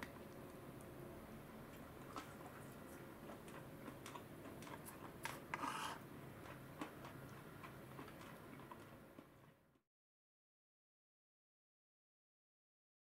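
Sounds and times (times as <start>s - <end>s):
spoon scraping bowl: 5.3s - 6.0s.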